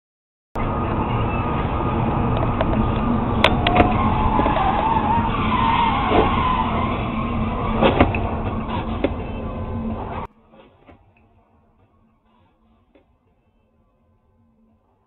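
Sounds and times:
tires squealing: 0.6s - 11.0s
highway road noise: 0.6s - 15.0s.

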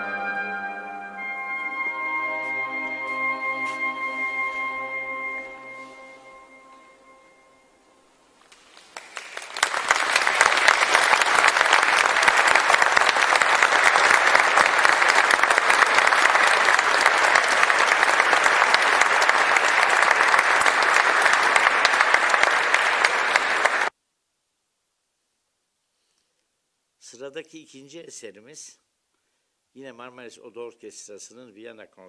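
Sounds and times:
audience applauding: 8.5s - 23.9s.

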